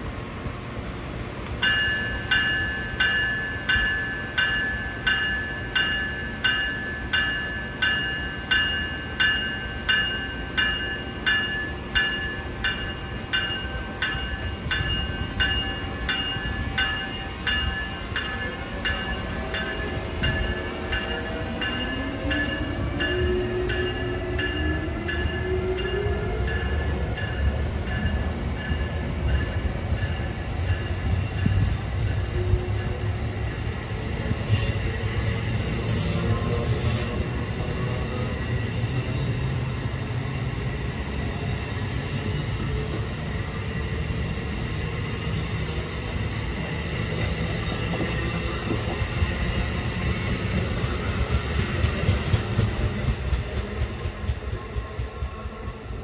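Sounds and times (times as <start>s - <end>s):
locomotive bell ringing: 1.6s - 33.6s, 34.4s - 39.3s.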